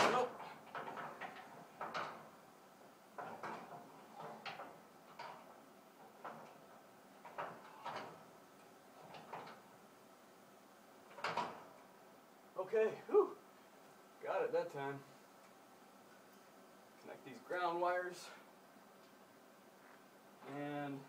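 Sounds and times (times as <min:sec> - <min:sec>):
metal parts clicking and knocking: 0:00.0 - 0:02.3.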